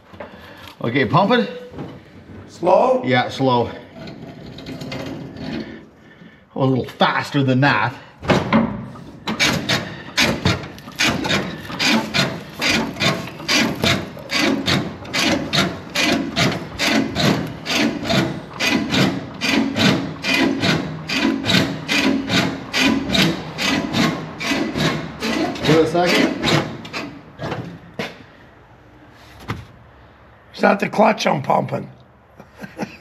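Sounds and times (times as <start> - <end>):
pedal linkage creaking: 9.2 - 27.7.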